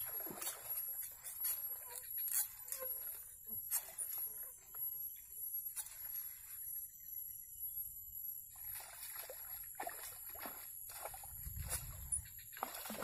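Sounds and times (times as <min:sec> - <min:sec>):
fish thrashing and splashing water: 0:00.0 - 0:01.0, 0:08.6 - 0:13.0.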